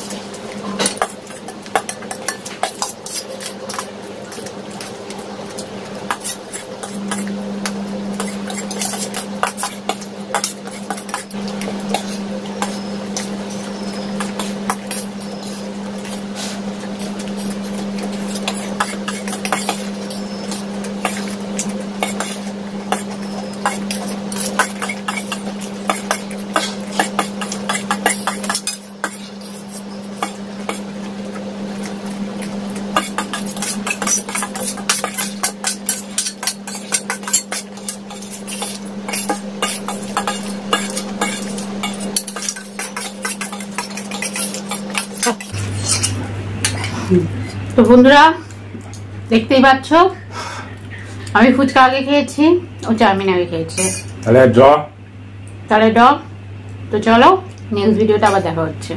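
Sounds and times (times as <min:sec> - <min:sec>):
low steady hum: 0:00.0 - 0:58.9
fork scraping metal plate: 0:08.1 - 0:30.8, 0:32.9 - 0:47.0
chewing and slurping: 0:08.1 - 0:47.8.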